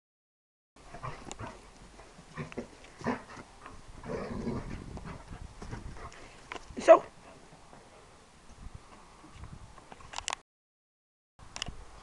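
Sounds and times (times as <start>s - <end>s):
dogs playing roughly: 0.8s - 6.5s.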